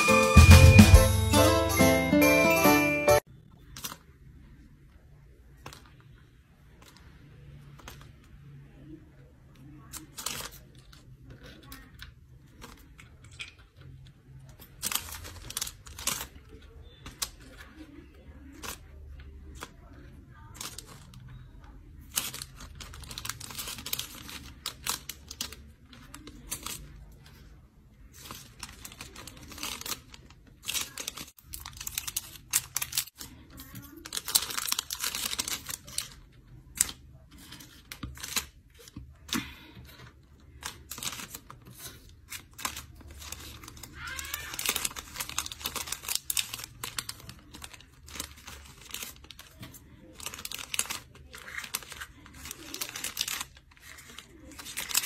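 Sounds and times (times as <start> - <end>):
plastic bags crinkling: 14.4 - 21.3, 22.0 - 27.0, 28.0 - 55.0.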